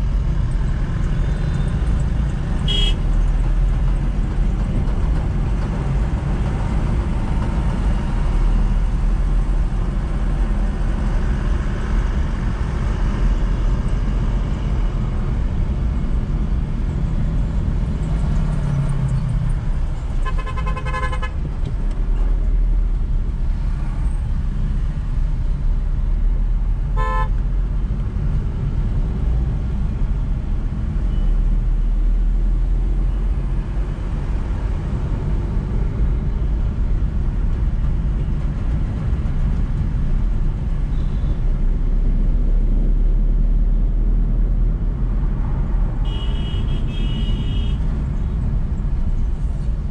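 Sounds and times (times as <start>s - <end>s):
car road and engine rumble: 0.0s - 49.9s
vehicle horn honking: 2.6s - 3.0s, 20.2s - 21.4s, 27.0s - 27.4s, 46.0s - 47.8s.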